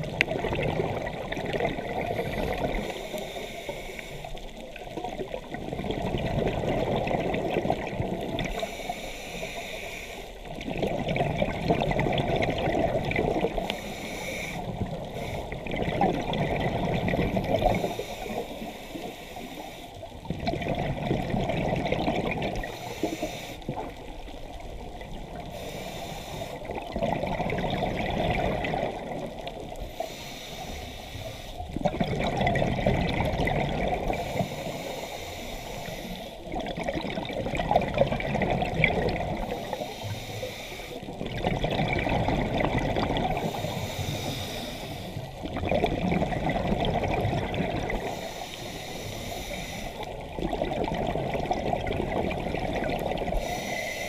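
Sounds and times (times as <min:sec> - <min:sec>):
bubbling on exhale: 0:00.0 - 0:03.0, 0:05.0 - 0:08.7, 0:10.6 - 0:13.9, 0:14.6 - 0:18.4, 0:20.2 - 0:24.0, 0:26.5 - 0:29.6, 0:31.6 - 0:34.9, 0:36.4 - 0:39.9, 0:41.1 - 0:48.2, 0:49.5 - 0:54.0
regulator hiss on inhale: 0:02.0 - 0:04.6, 0:08.4 - 0:10.5, 0:13.5 - 0:15.7, 0:17.3 - 0:20.2, 0:22.6 - 0:23.8, 0:25.3 - 0:26.8, 0:29.7 - 0:31.8, 0:34.1 - 0:36.6, 0:39.4 - 0:41.2, 0:43.3 - 0:45.4, 0:47.9 - 0:50.2, 0:53.2 - 0:54.0.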